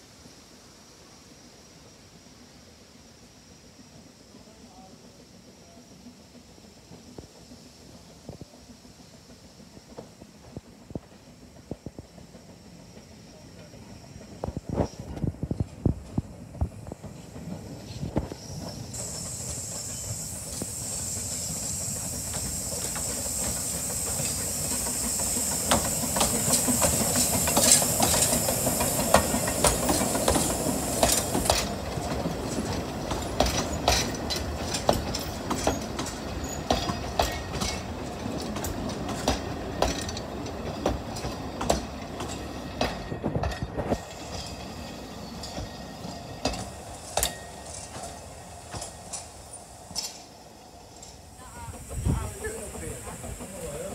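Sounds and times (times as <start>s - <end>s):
hiss of steam: 0.0s - 53.9s
train wheels clicking over rail joints: 3.6s - 53.9s.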